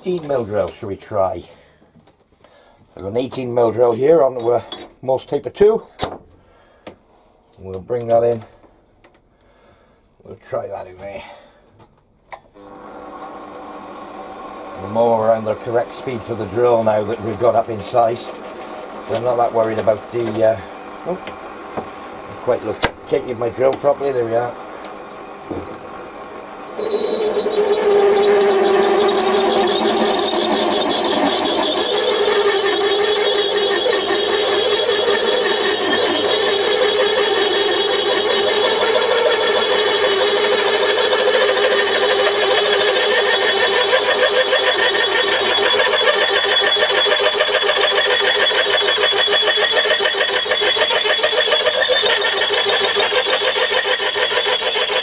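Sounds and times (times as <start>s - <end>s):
lathe drilling metal ringing rattle: 15.0s - 21.1s, 26.7s - 55.0s.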